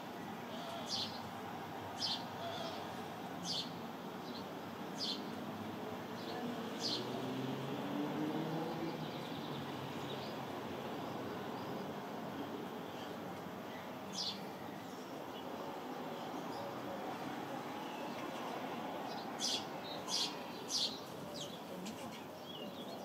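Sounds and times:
sparrow chirping: 3.4 - 5.3, 19.1 - 23.0.

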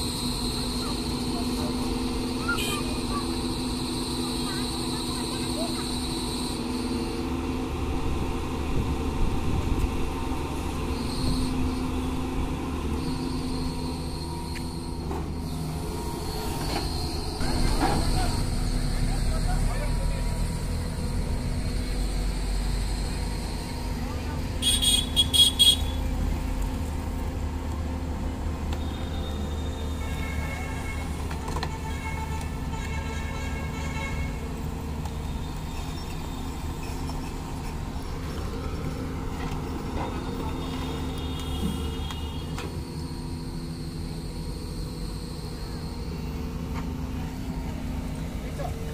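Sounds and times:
excavator diesel engine running: 0.0 - 48.9.

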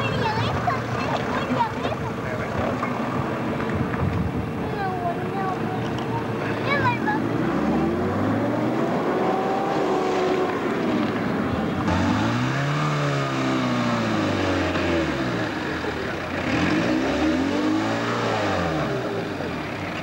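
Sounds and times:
off-road engine revving under load: 5.5 - 20.0.

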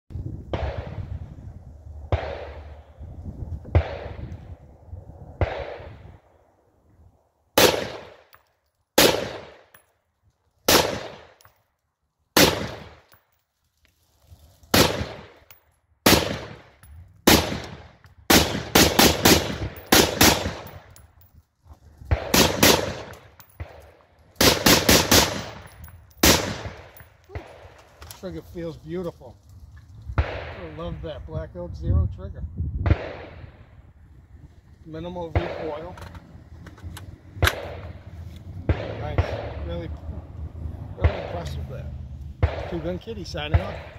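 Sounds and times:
rifle shots echoing: 2.1 - 2.9, 3.7 - 4.3, 5.4 - 6.1, 7.6 - 8.4, 9.0 - 9.8, 10.7 - 11.4, 12.4 - 13.2, 14.7 - 21.0, 22.1 - 27.8, 30.2 - 30.9, 32.9 - 33.6, 35.2 - 36.0, 37.4 - 39.8, 42.4 - 43.9.

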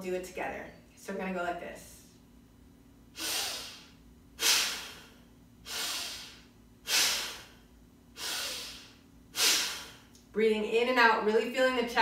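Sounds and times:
woman breathing forcefully: 3.2 - 10.1.

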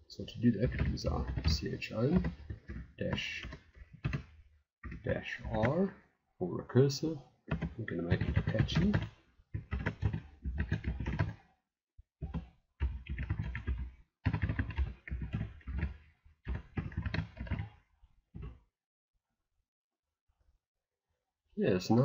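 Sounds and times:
keyboard keys clicking: 0.7 - 4.3, 7.5 - 11.4, 12.2 - 17.7.

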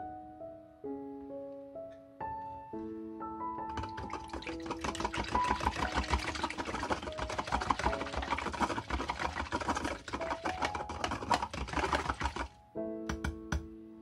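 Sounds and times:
wire whisk clicking in plastic container: 3.7 - 13.4.

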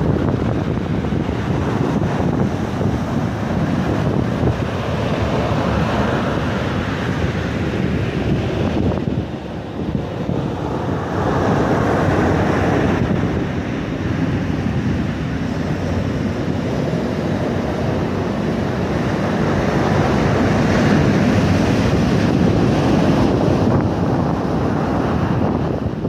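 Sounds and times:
ocean surf breaking: 0.0 - 26.0
wind on microphone: 0.0 - 26.0.

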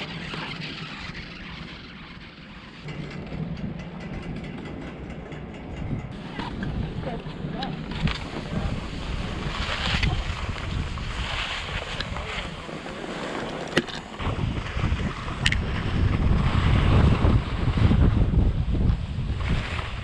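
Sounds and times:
wind buffeting microphone: 2.8 - 20.0
skis sliding on snow: 7.0 - 20.0.

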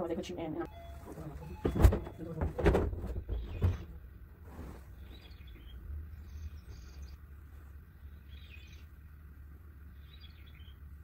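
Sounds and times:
steady low hum: 0.0 - 11.0
high bird chirping: 5.0 - 9.0, 9.8 - 10.9.

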